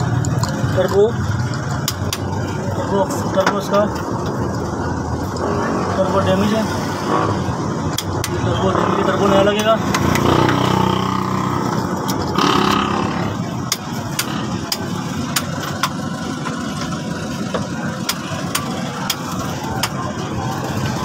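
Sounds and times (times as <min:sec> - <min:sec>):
engine running: 0:00.0 - 0:21.0
sharp metallic clicks: 0:00.1 - 0:02.3, 0:07.9 - 0:08.5, 0:13.6 - 0:16.0.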